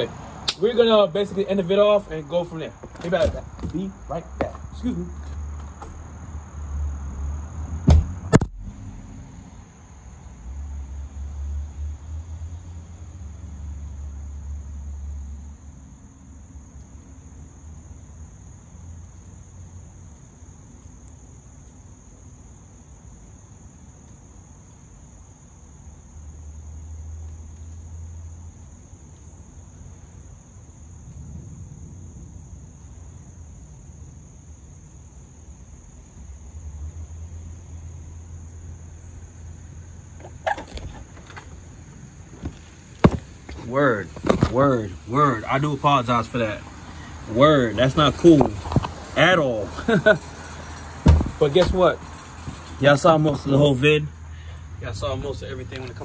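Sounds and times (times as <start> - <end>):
insects droning: 0.0 - 56.0
sharp knocks: 7.8 - 8.6, 42.4 - 43.6, 51.0 - 51.8.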